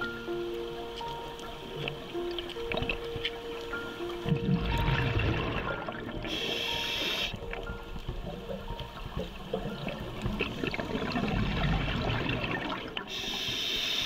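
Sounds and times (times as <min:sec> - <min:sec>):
regulator hiss on inhale: 0:06.3 - 0:07.4, 0:13.1 - 0:14.0.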